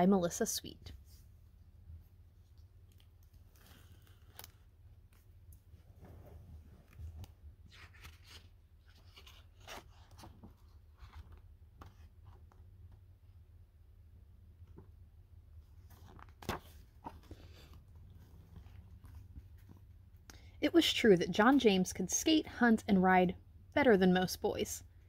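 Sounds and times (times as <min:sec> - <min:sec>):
book pages rustling: 0:02.5 - 0:13.0, 0:15.6 - 0:20.2.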